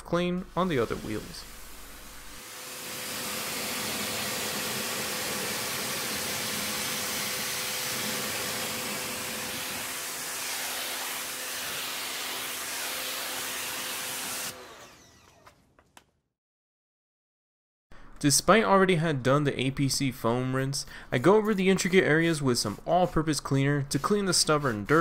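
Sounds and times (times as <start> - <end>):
pressure washer spraying water: 0.5 - 14.6.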